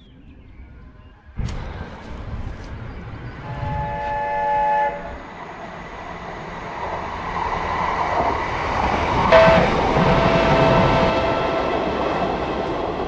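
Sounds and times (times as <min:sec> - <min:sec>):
diesel train engine and wheels: 0:00.0 - 0:13.0
train horn: 0:03.4 - 0:05.3, 0:09.3 - 0:12.0.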